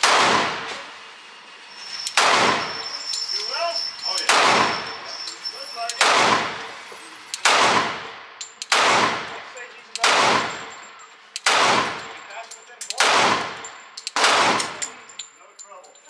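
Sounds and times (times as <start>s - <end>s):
pistol shots echoing: 0.0s - 0.9s, 2.2s - 2.8s, 4.3s - 5.0s, 5.9s - 15.1s.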